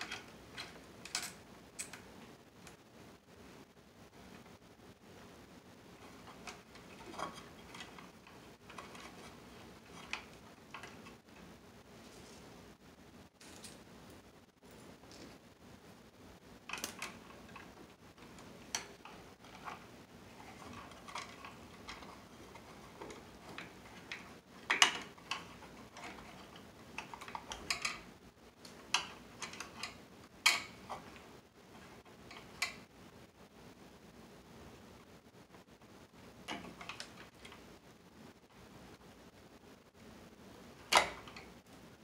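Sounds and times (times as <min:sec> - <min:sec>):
metallic clicks and scrapes: 0:06.0 - 0:11.5, 0:16.7 - 0:32.9.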